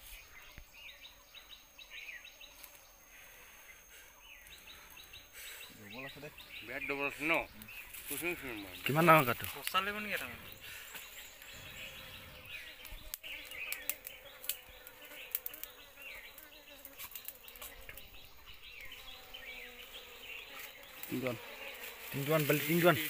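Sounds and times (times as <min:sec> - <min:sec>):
bees buzzing: 0:00.0 - 0:23.0
light clicks and rustles of wood chips: 0:07.5 - 0:10.3, 0:12.8 - 0:18.1.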